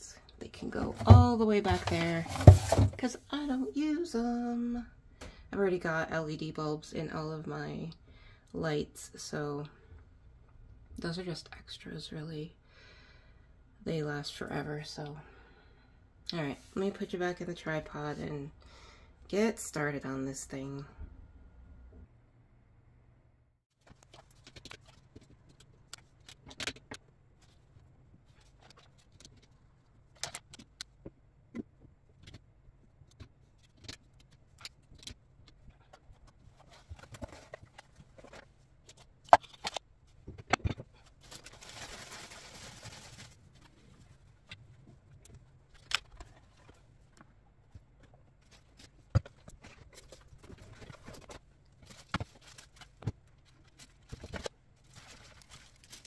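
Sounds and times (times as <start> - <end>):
household items clunking on plastic shelves: 0.7 - 3.1.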